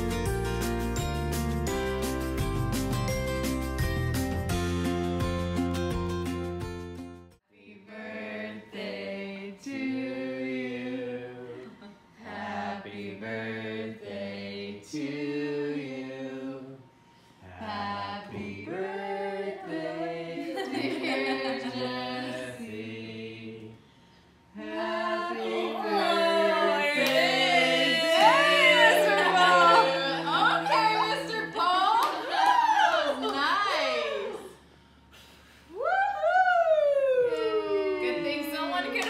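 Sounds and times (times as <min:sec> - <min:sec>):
voices singing gliding notes: 0:24.5 - 0:32.0.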